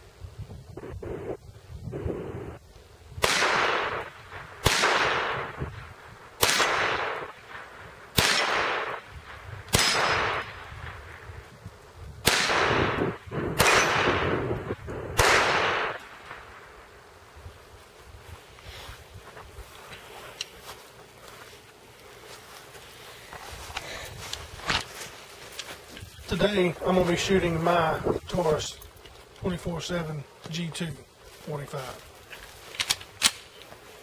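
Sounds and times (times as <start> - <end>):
pistol shots: 3.2 - 5.7, 6.4 - 11.0, 12.2 - 14.6, 15.2 - 16.6.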